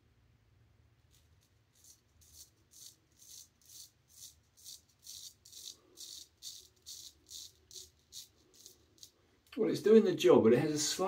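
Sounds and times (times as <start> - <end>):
straight razor scraping stubble: 1.1 - 9.2.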